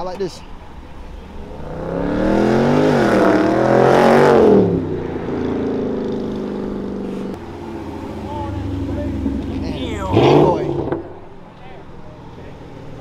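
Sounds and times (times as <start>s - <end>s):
car engine pulling away: 0.6s - 13.0s
car engine revving: 0.7s - 13.0s.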